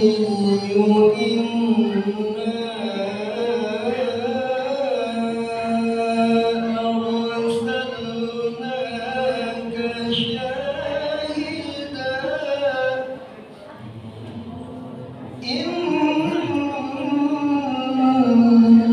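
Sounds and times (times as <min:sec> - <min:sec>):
man chanting into a microphone: 0:00.0 - 0:13.4, 0:15.3 - 0:18.9.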